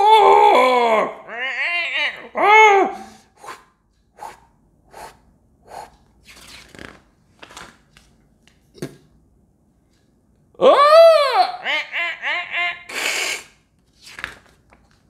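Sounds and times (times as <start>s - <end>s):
soft breathy puffs: 3.0s - 6.1s
paper page turning: 6.2s - 8.6s, 13.8s - 15.0s.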